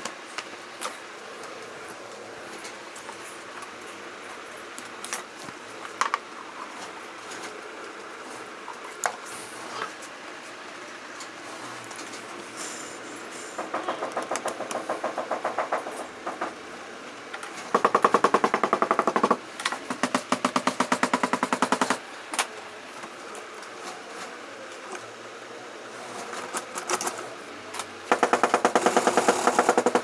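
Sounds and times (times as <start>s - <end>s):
sewing machine stitching leather: 28.1s - 30.0s.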